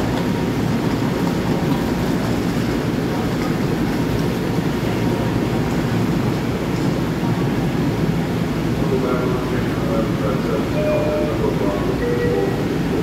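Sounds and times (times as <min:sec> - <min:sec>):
electric train humming: 0:00.0 - 0:13.0.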